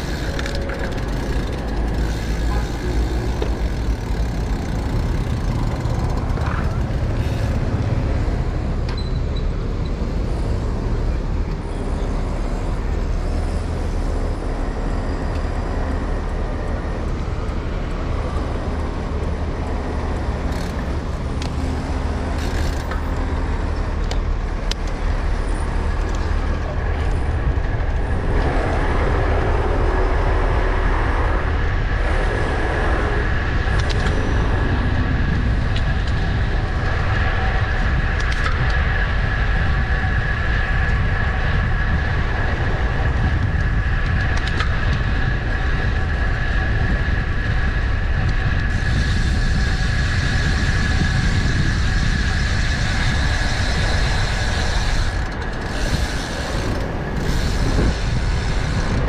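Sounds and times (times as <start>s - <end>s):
city traffic noise: 0.0s - 59.0s
wind buffeting microphone: 23.2s - 59.0s.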